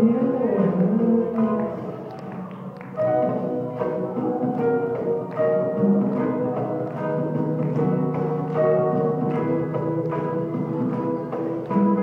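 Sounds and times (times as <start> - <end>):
acoustic guitar strumming chords: 2.9 - 12.0.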